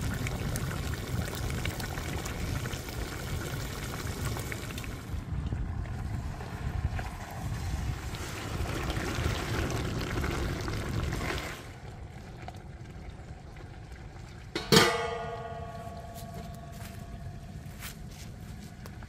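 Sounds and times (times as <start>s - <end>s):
stew simmering: 0.0s - 19.0s
metal lid clanging on pot: 14.6s - 17.2s.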